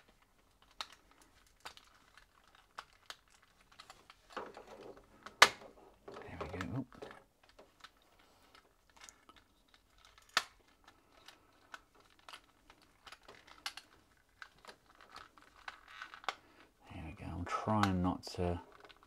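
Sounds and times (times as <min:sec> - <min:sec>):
plastic snap: 0:05.2 - 0:05.8.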